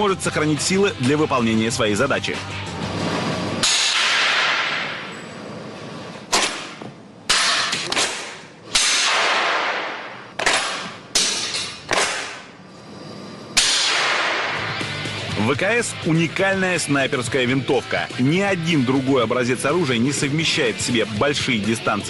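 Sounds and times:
echo of gunshots: 3.6 - 5.1, 6.3 - 11.0, 13.6 - 14.8.

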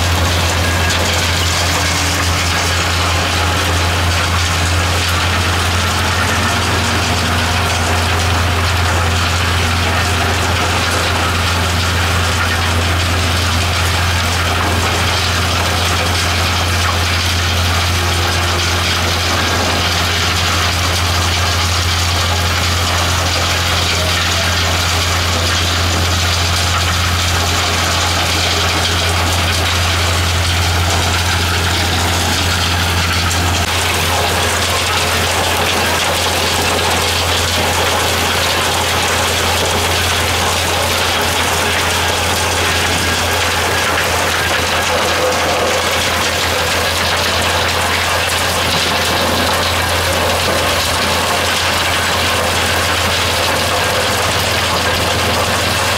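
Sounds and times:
gear drive working: 0.0 - 55.9
low drive hum: 0.0 - 55.9
material churning in drum: 0.0 - 55.9.

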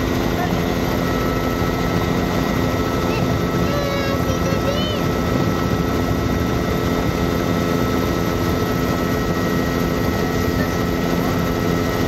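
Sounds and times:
helicopter engine and rotor drone: 0.0 - 12.0.

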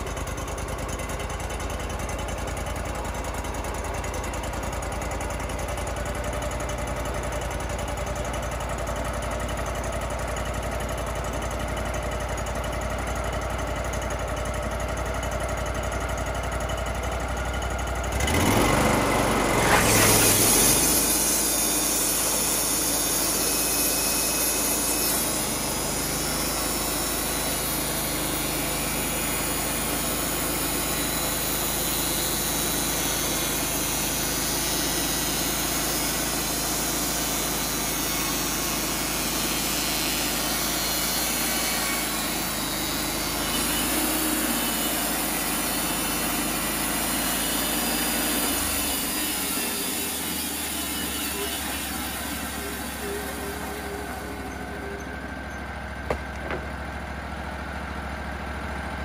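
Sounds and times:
sawmill engine running: 0.0 - 59.0
band blade cutting log: 18.4 - 54.5.

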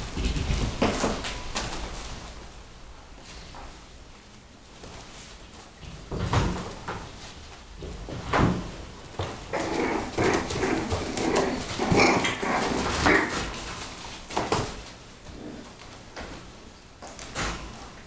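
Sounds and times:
puppies yapping and barking: 9.5 - 13.6.

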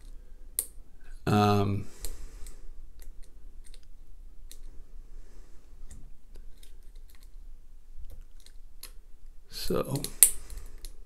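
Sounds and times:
lock pick clicking and scratching: 2.4 - 4.7, 5.9 - 7.4, 8.0 - 9.0.

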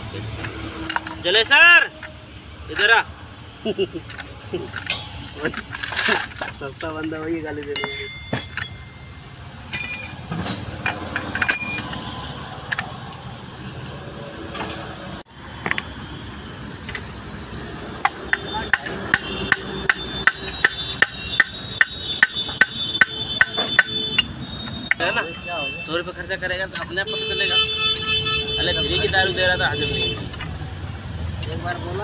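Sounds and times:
tool clinks: 0.2 - 3.1, 3.8 - 13.1
hammer tapping on metal: 18.0 - 25.1.

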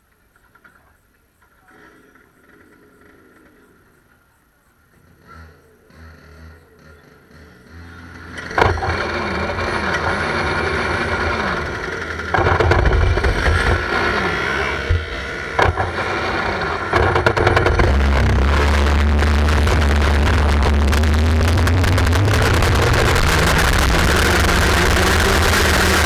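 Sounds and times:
kart engines revving: 4.9 - 26.0
sharp knocks: 12.3 - 13.8, 15.6 - 16.0.

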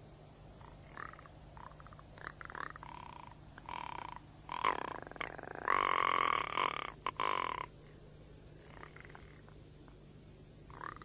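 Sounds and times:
nasal animal calls: 0.6 - 7.7, 8.6 - 9.6, 10.7 - 11.0.

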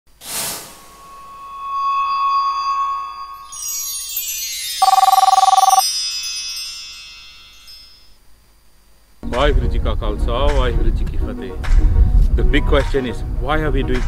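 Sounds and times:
shimmering chime tones: 0.9 - 8.2
trilling two-tone ring: 0.9 - 8.2.

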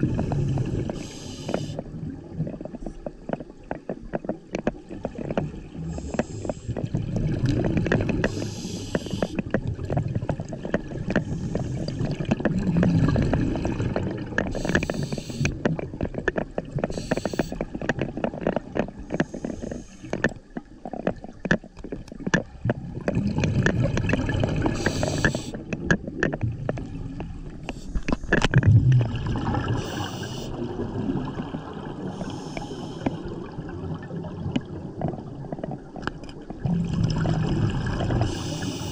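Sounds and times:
gurgling exhaled bubbles: 0.0 - 2.8, 4.8 - 20.2, 22.4 - 38.9
scuba regulator hissing: 14.6 - 15.5, 16.9 - 17.6, 24.8 - 25.6, 29.8 - 30.5, 38.3 - 38.9.

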